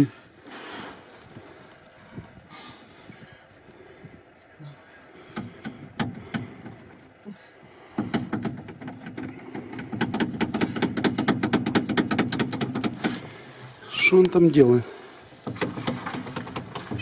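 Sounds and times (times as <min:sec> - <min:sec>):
knocks: 0:05.3 - 0:06.9, 0:07.9 - 0:13.4, 0:15.4 - 0:17.0.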